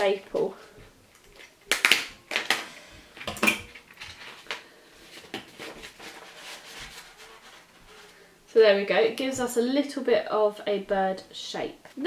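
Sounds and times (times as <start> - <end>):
paper handling: 3.6 - 8.3.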